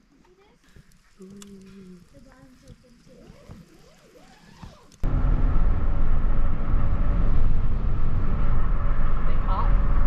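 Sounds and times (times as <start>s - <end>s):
loud steady low rumble: 5.0s - 10.0s.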